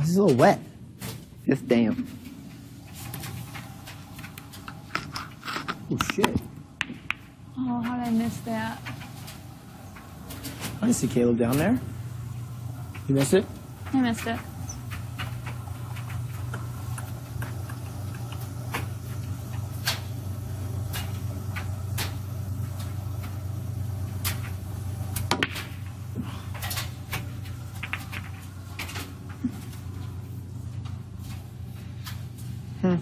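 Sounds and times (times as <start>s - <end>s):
steady low hum: 0.0s - 33.0s
billiard balls clacking: 4.4s - 7.4s, 25.2s - 25.8s, 26.8s - 29.0s.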